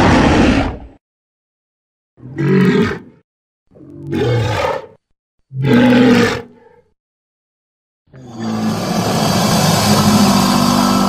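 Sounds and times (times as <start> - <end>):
creature roaring: 8.2 - 11.0.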